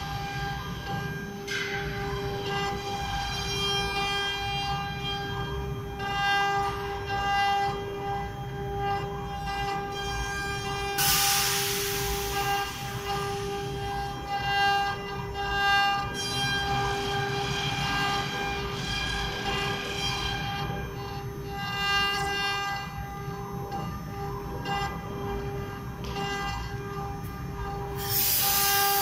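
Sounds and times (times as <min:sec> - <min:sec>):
burst of hiss: 0:11.0 - 0:13.5, 0:28.0 - 0:29.0.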